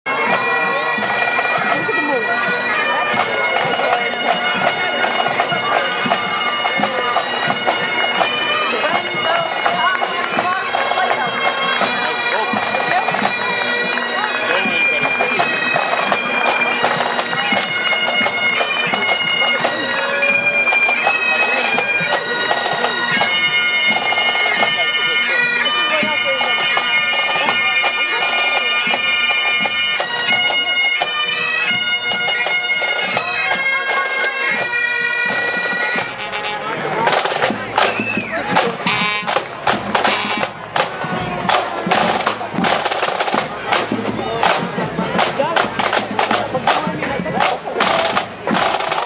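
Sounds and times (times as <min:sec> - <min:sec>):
bagpipes playing: 0:00.1 - 0:49.0
snare drums playing: 0:32.4 - 0:49.0.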